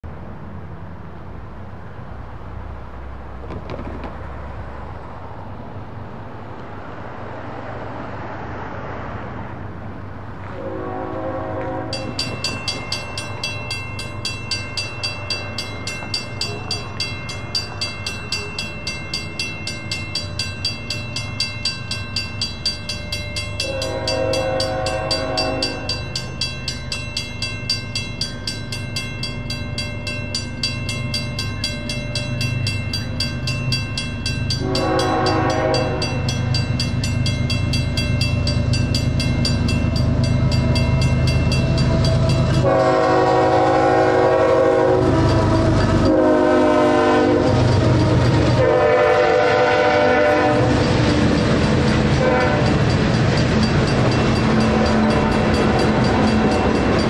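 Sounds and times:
low rumble of freight train: 0:00.0 - 0:57.0
diesel locomotive horn: 0:10.4 - 0:12.5, 0:23.6 - 0:26.2, 0:34.5 - 0:36.6, 0:41.5 - 0:53.0
crossing signal bell ringing: 0:10.9 - 0:57.0.

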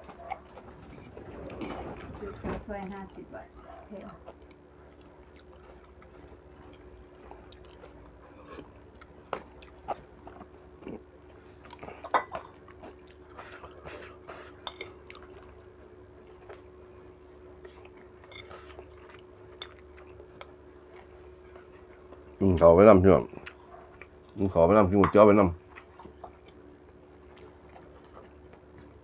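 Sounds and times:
faint steady hum: 0:00.0 - 0:29.0
cutlery clinking on a bowl: 0:14.6 - 0:15.0.

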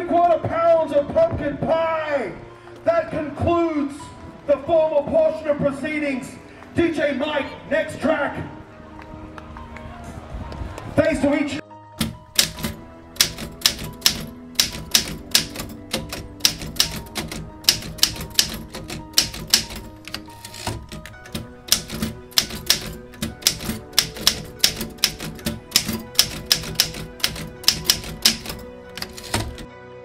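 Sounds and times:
manual typewriter clacking: 0:12.0 - 0:29.7.

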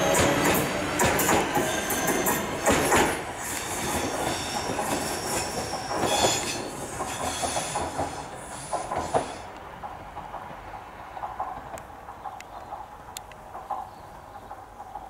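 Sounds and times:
train wheels squealing: 0:00.0 - 0:09.6
train running gear rumble and clatter: 0:00.0 - 0:15.0.

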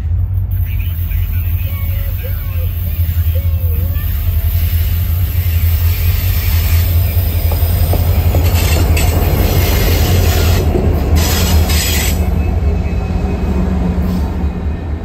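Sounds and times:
locomotive engine rumble: 0:00.0 - 0:15.0
rail and wheel noise: 0:00.0 - 0:15.0
high hiss bursts: 0:00.5 - 0:12.2.

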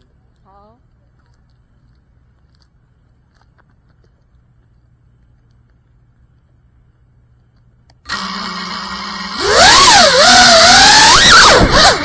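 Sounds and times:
faint ticks: 0:00.0 - 0:06.7
steady low rumble: 0:00.0 - 0:08.1.

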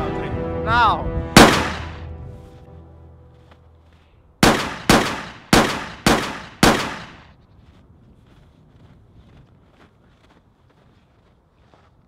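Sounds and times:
pistol shots: 0:01.4 - 0:02.0, 0:04.4 - 0:07.3.

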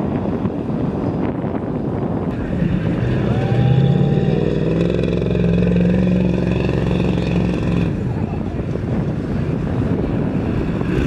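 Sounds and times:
diesel engine at high revs: 0:02.3 - 0:08.4.

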